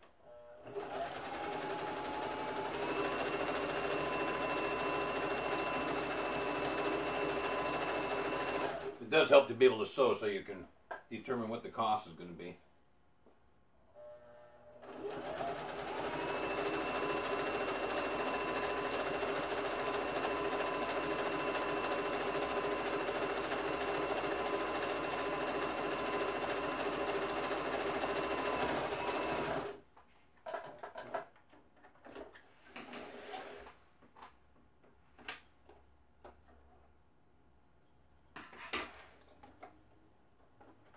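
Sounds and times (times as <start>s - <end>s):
sewing machine motor whine: 0.3s - 9.0s, 14.8s - 29.8s.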